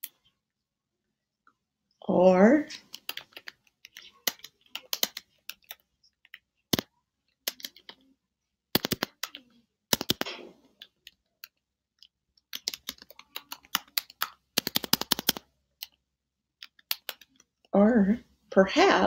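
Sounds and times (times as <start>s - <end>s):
computer keyboard typing: 2.8s - 6.8s, 7.4s - 8.0s, 8.8s - 11.6s, 12.4s - 16.0s, 16.6s - 17.5s.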